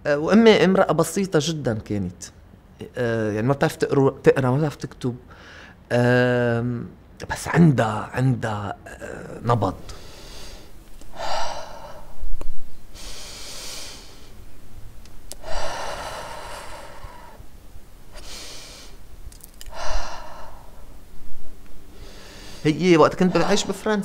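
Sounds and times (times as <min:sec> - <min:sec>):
heavy human breathing: 0:05.3 - 0:05.8, 0:09.8 - 0:14.4, 0:15.3 - 0:17.5, 0:18.1 - 0:19.0, 0:19.6 - 0:21.0, 0:21.9 - 0:23.9.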